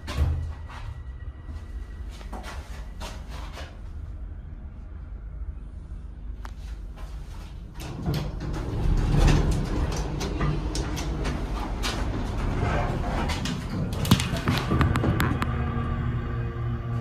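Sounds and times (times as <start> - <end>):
elevator low rumble: 0.0 - 17.0
elevator clicks and knocks: 13.4 - 15.5.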